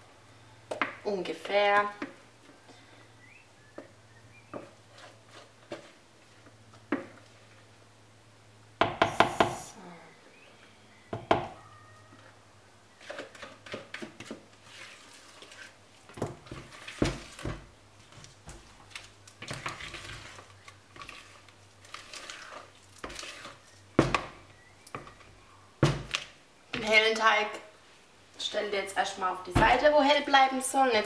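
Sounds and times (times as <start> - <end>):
spatula scraping plastic bowl: 4.6 - 6.0, 13.0 - 15.8, 19.4 - 23.7.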